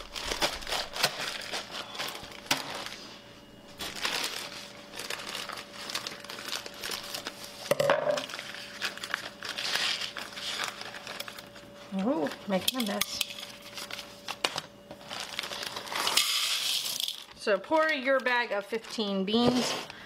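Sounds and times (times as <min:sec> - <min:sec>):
plastic bag crinkling: 0:00.0 - 0:03.1, 0:03.7 - 0:20.0
beans shifting in bag: 0:15.0 - 0:20.0.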